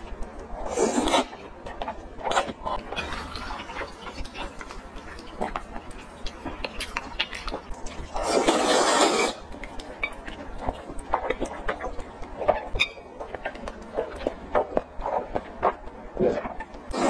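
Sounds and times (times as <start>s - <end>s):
wet chewing and lip smacks: 1.6s - 8.2s, 9.4s - 16.9s
loud slurp of noodles: 8.2s - 9.4s.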